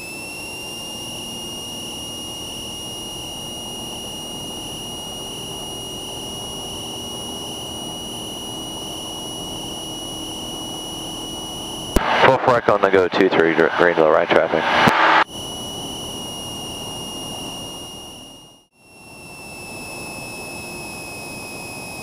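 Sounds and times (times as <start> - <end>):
airplane engine roar with whine: 0.0 - 22.0.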